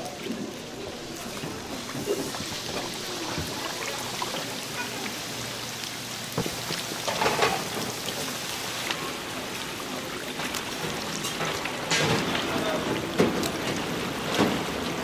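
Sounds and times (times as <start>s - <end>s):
food sizzling in hot oil: 0.9s - 9.8s.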